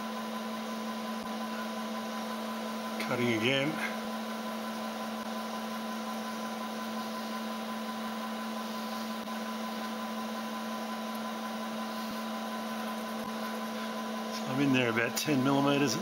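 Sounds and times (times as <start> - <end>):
high steady whine: 0.0 - 16.0
milling machine hum: 0.0 - 16.0.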